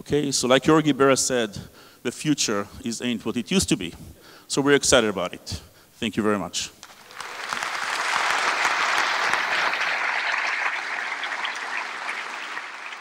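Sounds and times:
audience applauding: 6.8 - 13.0.

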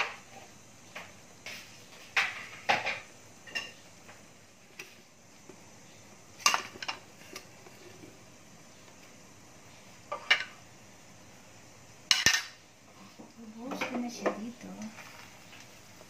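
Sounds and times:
dishes and utensils clinking: 2.2 - 3.8, 6.4 - 7.4, 12.1 - 12.6.

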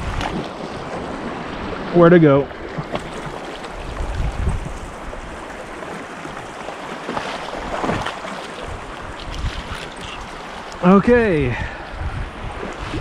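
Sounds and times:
wind rumble on microphone: 0.0 - 1.9, 3.7 - 5.5, 7.6 - 10.3, 10.9 - 13.0
stream running over rocks: 0.0 - 12.0.

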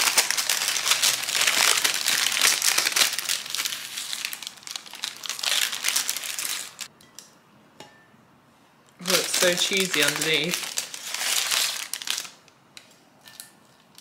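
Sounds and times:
baking paper crinkling: 0.0 - 6.9, 9.0 - 12.5.

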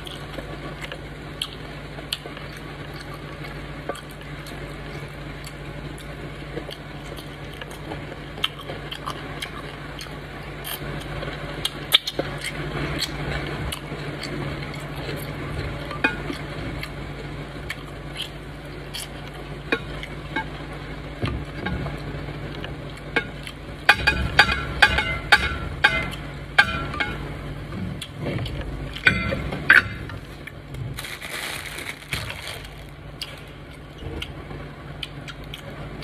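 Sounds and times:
low hum: 13.3 - 36.0
wet squelching of eating: 30.4 - 34.4.

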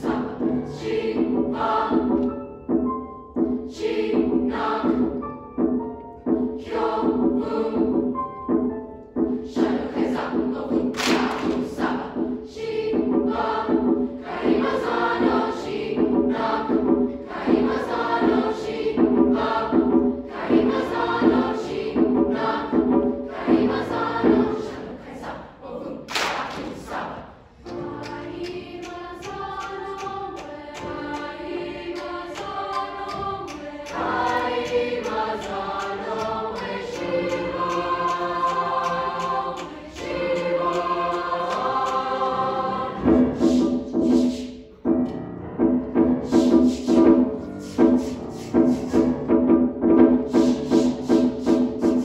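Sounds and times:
youth choir singing: 0.0 - 2.4, 3.7 - 5.2, 6.3 - 8.2, 9.5 - 44.4.

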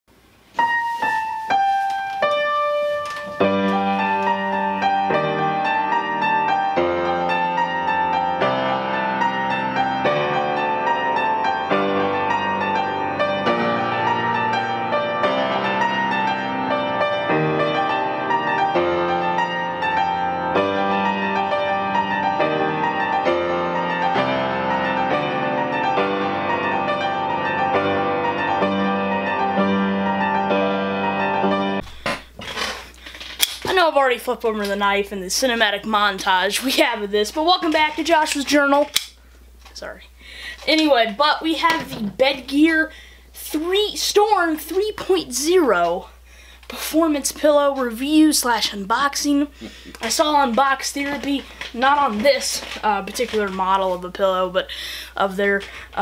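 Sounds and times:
piano music: 0.6 - 32.0.

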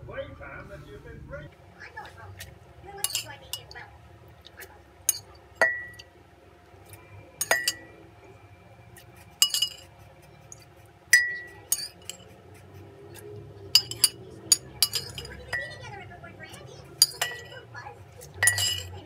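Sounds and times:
utensil clinking on glass jar: 3.0 - 3.8, 5.1 - 6.1, 7.4 - 7.9, 9.4 - 9.9, 11.2 - 12.4, 13.7 - 15.8, 17.0 - 17.6, 18.2 - 19.0.

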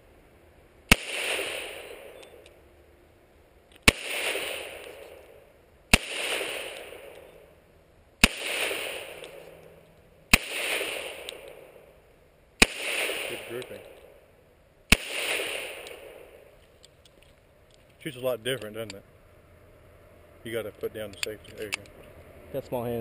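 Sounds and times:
pistol shots with echo: 0.9 - 2.5, 3.8 - 7.5, 8.2 - 9.6, 10.3 - 12.0, 12.6 - 14.3, 14.9 - 16.6.

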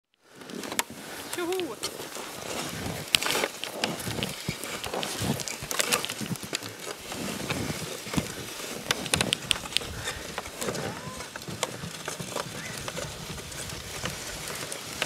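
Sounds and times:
footsteps crunching on snow: 0.2 - 15.0.

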